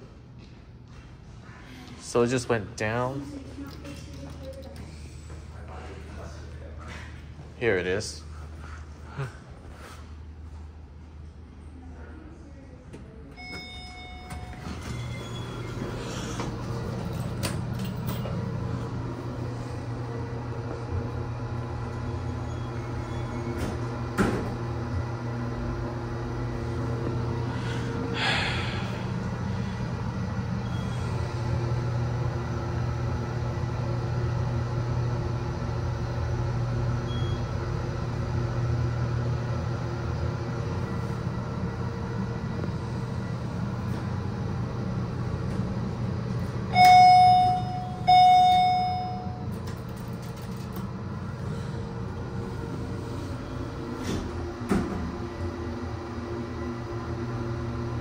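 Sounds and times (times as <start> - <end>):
elevator low hum: 0.0 - 58.0
elevator arrival chime: 13.3 - 16.0, 46.7 - 50.7.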